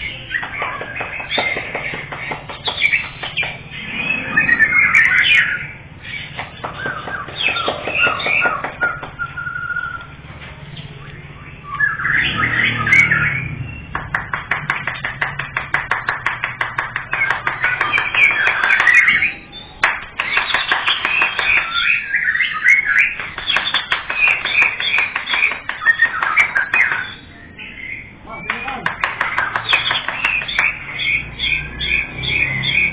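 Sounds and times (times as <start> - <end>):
songbird singing: 0.0 - 32.9.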